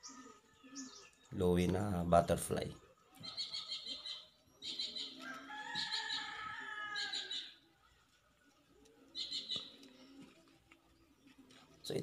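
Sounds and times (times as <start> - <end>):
bird chirping trills: 0.0 - 7.7, 8.8 - 12.0
rooster crowing: 5.1 - 7.6.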